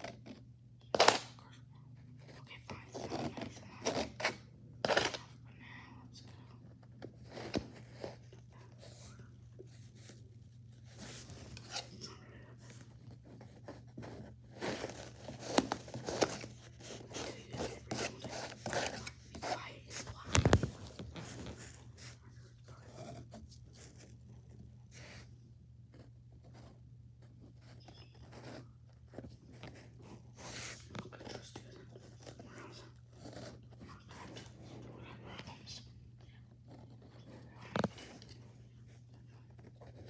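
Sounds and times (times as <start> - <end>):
low electrical hum: 0.0 - 40.0
scraping and rustling handling: 6.9 - 25.3.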